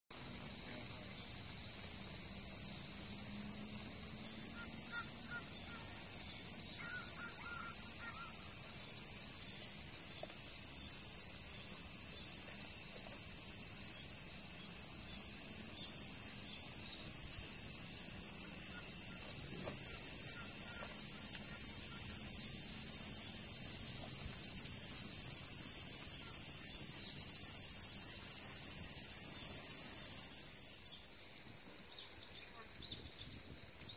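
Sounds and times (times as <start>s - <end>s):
high-pitched insect chorus: 0.1s - 33.9s.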